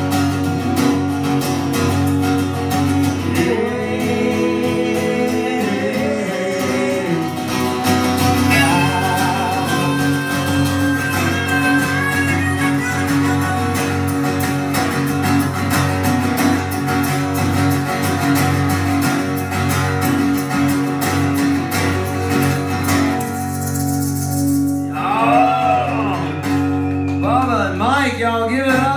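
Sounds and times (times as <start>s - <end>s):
acoustic guitar strumming: 0.0s - 28.9s
person speaking: 8.5s - 14.0s.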